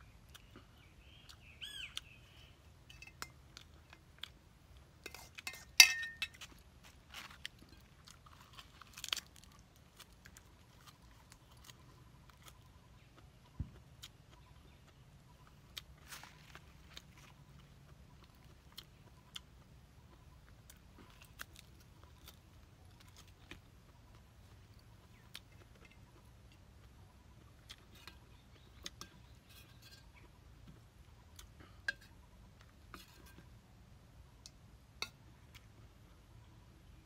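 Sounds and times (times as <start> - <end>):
metal spoon scraping bowl: 5.0 - 6.3.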